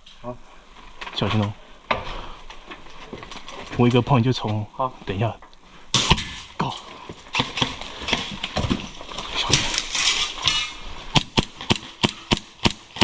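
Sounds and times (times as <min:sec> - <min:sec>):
clicks and rustle: 0:02.4 - 0:05.6, 0:06.4 - 0:10.8
airsoft gun shots: 0:06.0 - 0:06.4, 0:11.1 - 0:13.0.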